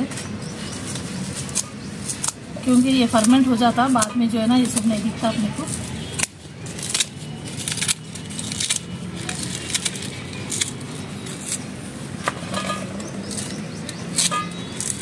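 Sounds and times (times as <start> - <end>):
scissors snipping plant stem: 13.0 - 15.0.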